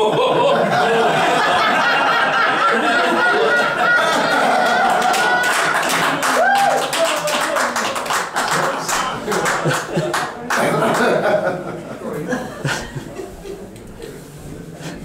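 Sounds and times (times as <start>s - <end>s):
crowd laughing and chattering: 0.0s - 6.5s, 7.2s - 15.0s
hand-clapping: 4.9s - 11.1s.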